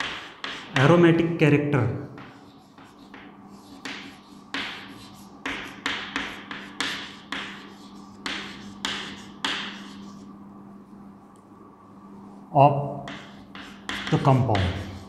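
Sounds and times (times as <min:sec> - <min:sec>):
chalk tapping and scraping: 0:00.0 - 0:01.1, 0:02.1 - 0:10.3, 0:13.0 - 0:15.0
steady low hum: 0:00.0 - 0:15.0.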